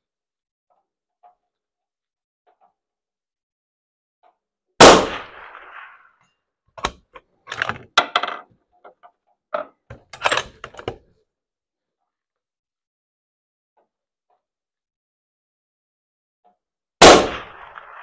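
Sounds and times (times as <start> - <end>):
rifle shot: 4.8 - 6.1, 17.0 - 18.0
rifle bolt clicking: 10.1 - 11.0.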